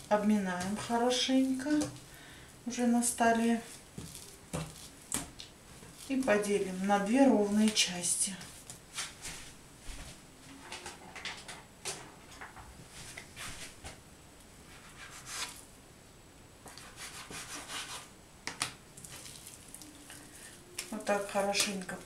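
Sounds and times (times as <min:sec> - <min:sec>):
dough scraping and rubbing: 0:00.0 - 0:02.0, 0:02.7 - 0:09.6, 0:14.6 - 0:15.6, 0:16.7 - 0:18.1.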